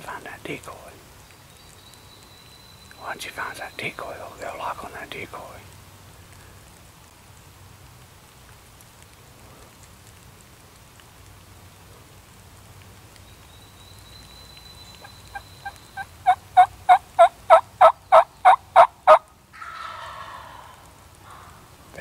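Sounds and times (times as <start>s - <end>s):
turkey hen yelps: 16.0s - 21.5s.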